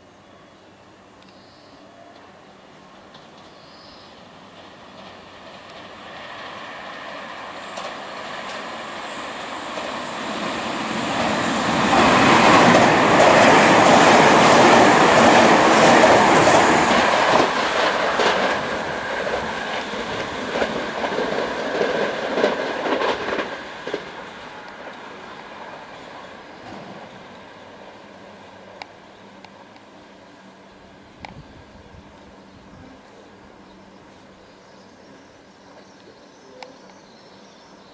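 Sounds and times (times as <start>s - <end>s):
electric train passing: 0.0s - 37.9s
wheels clacking on rail joints: 2.9s - 27.9s.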